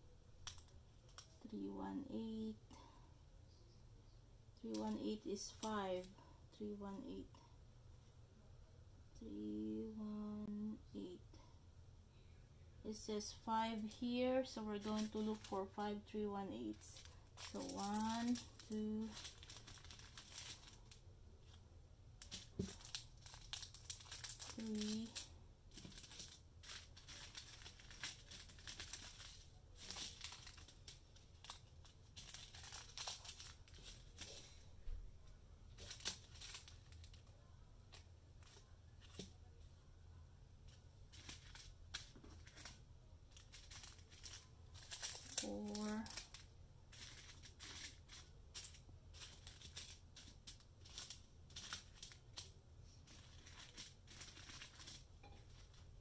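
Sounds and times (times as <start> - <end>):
person speaking: 1.4 - 2.7, 4.6 - 7.4, 12.8 - 19.2, 24.5 - 25.2, 45.4 - 46.2
plastic bags crinkling: 14.6 - 21.6, 22.2 - 34.9, 35.7 - 39.4, 40.7 - 56.0.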